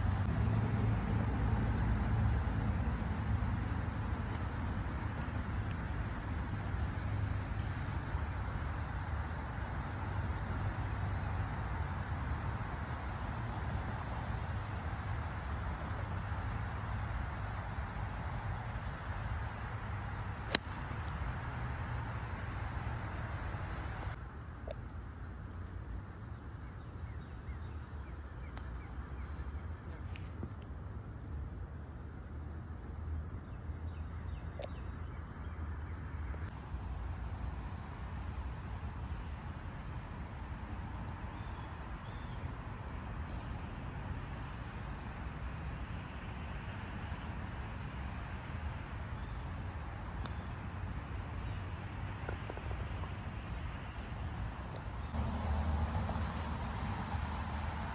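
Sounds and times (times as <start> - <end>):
insects chirring: 0.9 - 57.9
low steady rumble: 50.6 - 57.9.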